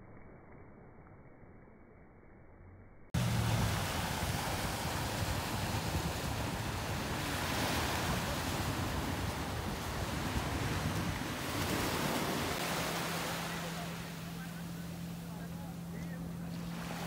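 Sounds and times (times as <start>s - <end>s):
wind buffeting microphone: 3.2s - 12.8s
wind and sea water rushing: 3.2s - 17.0s.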